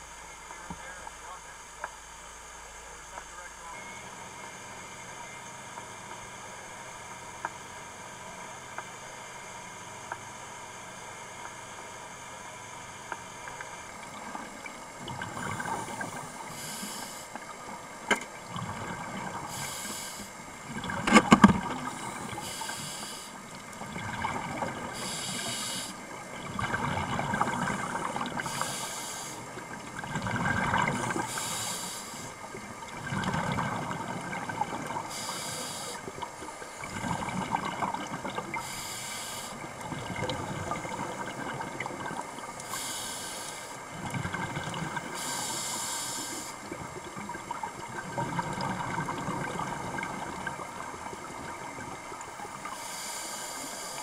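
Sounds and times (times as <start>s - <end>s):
rumbling exhaled bubbles: 13.6s - 16.8s, 17.4s - 28.8s, 29.4s - 31.5s, 32.4s - 35.3s, 36.0s - 38.8s, 39.6s - 42.6s, 43.9s - 45.2s, 46.6s - 52.8s
regulator breathing hiss: 15.7s - 17.5s, 19.5s - 20.4s, 21.8s - 23.4s, 25.0s - 26.0s, 27.6s - 29.6s, 31.0s - 32.4s, 35.0s - 36.2s, 38.6s - 39.7s, 42.6s - 43.9s, 45.1s - 46.7s, 52.6s - 54.0s.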